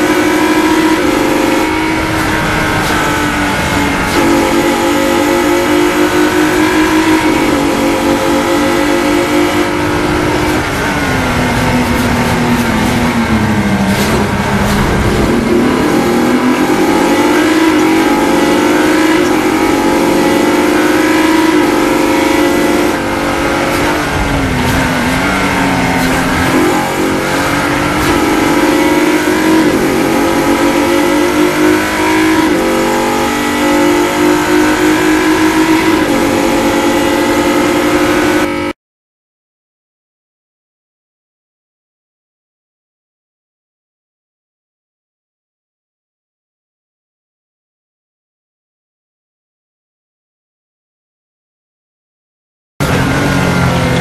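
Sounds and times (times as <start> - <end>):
racing car engine revving: 0.0 - 38.8, 52.8 - 54.0.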